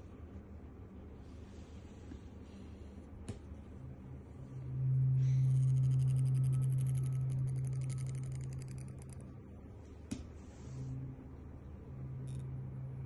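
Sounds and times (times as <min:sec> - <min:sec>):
tuning fork low hum: 0:00.0 - 0:13.0
faint fast high ticking: 0:05.5 - 0:09.2.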